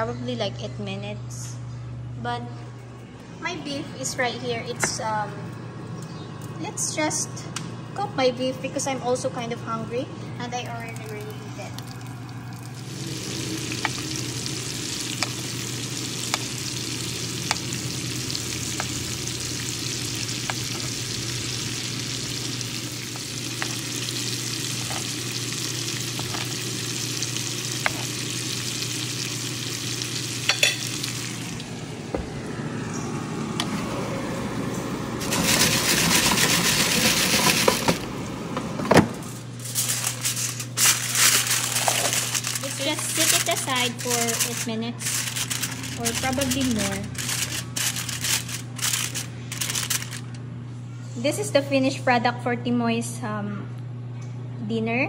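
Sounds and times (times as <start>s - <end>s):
steaks sizzling in a frying pan: 12.8s - 31.4s
aluminium foil crinkling: 39.6s - 50.4s.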